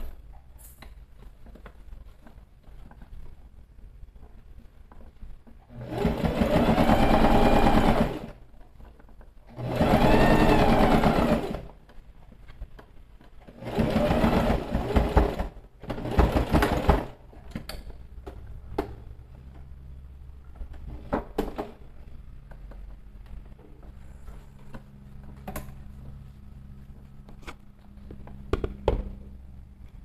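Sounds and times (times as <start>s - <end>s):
sewing machine stitching: 5.7s - 8.4s, 9.5s - 11.8s, 13.5s - 17.2s.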